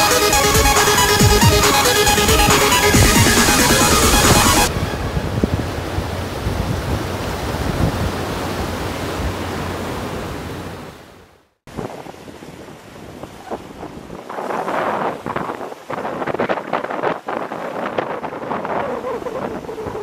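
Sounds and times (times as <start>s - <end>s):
wind buffeting microphone: 0.0s - 9.7s, 11.7s - 20.0s
sea surf: 0.0s - 20.0s.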